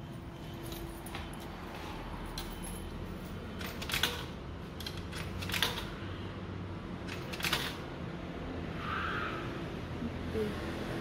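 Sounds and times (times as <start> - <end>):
coins dropping into slot: 7.1 - 7.8.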